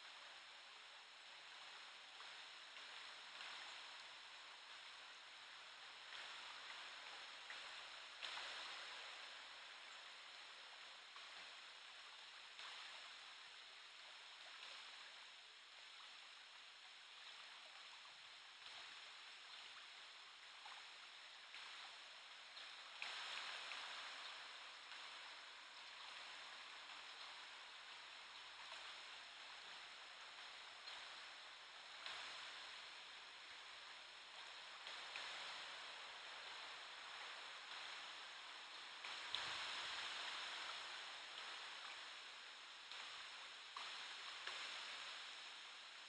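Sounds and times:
river current rippling: 20.7s - 46.0s.

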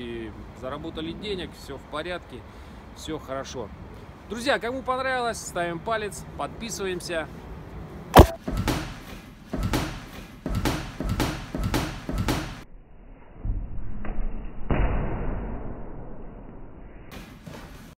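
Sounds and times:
sharp loud knock: 8.2s - 8.8s
boxing gloves thudding and slapping: 8.2s - 12.6s.

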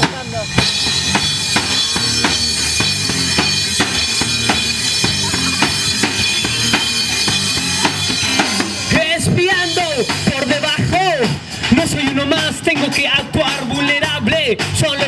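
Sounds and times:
bass guitar: 0.0s - 15.0s
drum kit beat: 0.0s - 15.0s
person singing: 8.8s - 15.0s.

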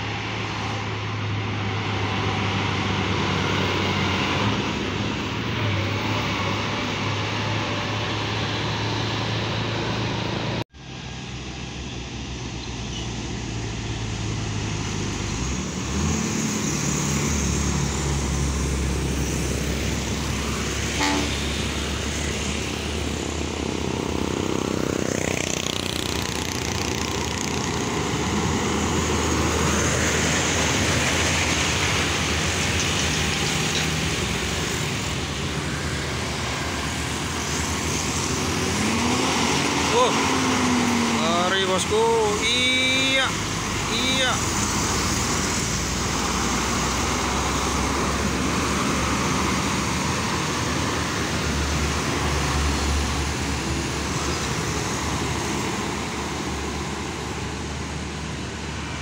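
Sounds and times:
truck diesel engines passing: 0.0s - 59.0s
motorcycles driving past: 14.1s - 57.6s
short horn beep: 21.0s - 21.6s.

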